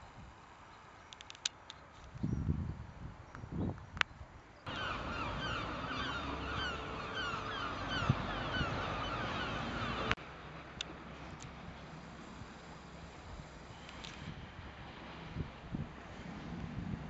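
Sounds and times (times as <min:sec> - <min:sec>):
flock of birds calling: 0:04.7 - 0:10.2.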